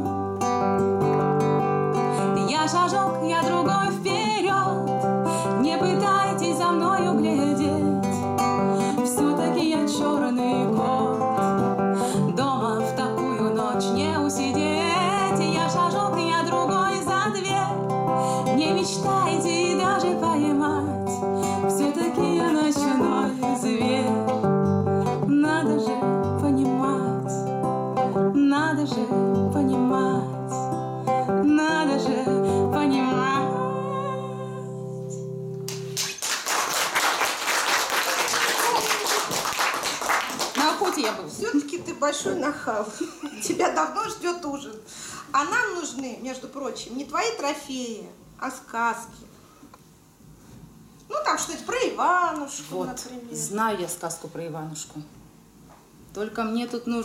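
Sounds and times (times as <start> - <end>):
woman singing: 0.0 - 0.4, 2.0 - 35.3
acoustic guitar strumming: 0.0 - 36.0.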